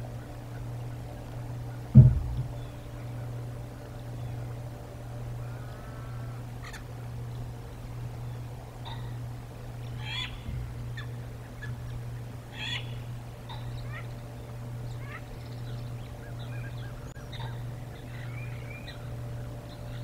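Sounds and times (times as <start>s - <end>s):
steady low hum: 0.0s - 20.0s
birds chirping and whistling: 1.7s - 3.3s, 9.8s - 20.0s.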